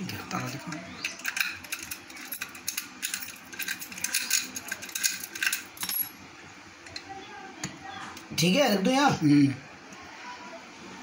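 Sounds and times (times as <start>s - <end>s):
padlock clicking and rattling: 1.0s - 5.9s.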